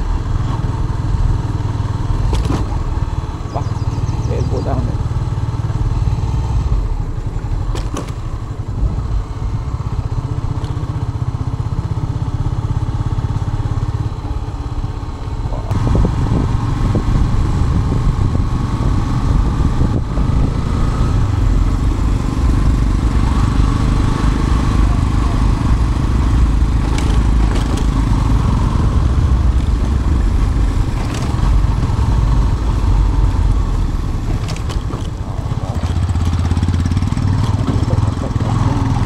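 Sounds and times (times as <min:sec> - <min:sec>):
motorcycle engine running: 0:00.0 - 0:39.0
wind rumble on microphone: 0:15.4 - 0:39.0.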